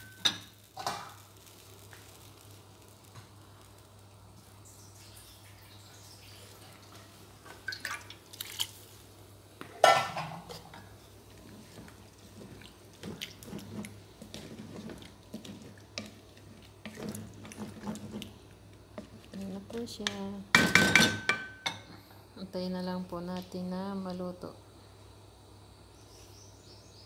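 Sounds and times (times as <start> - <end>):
scraping in pot: 9.8 - 19.5.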